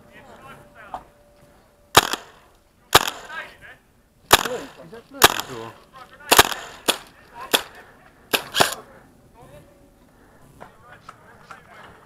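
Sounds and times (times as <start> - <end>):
airsoft rifle shots: 2.0 - 3.5, 4.3 - 8.8.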